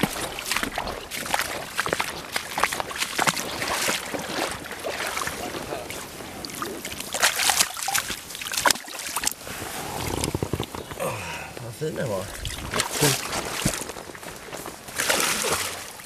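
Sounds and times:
close-up rustling and scuffing: 11.6 - 15.8.

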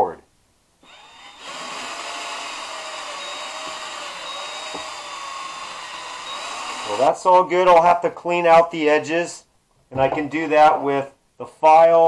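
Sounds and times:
cordless drill boring plastic: 0.8 - 7.0.

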